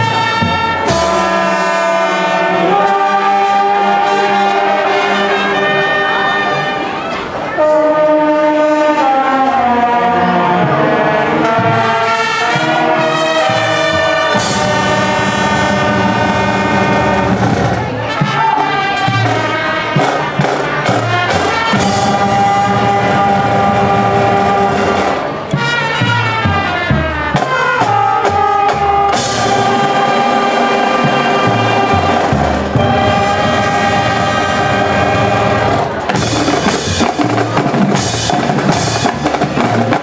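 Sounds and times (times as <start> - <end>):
marching band brass: 0.0 - 40.0
drum and cymbal hits: 12.5 - 40.0.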